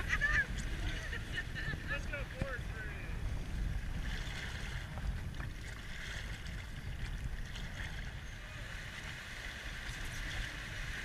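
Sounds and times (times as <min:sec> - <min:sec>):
wind rumble on microphone: 0:00.0 - 0:11.0
river water rushing: 0:04.0 - 0:11.0.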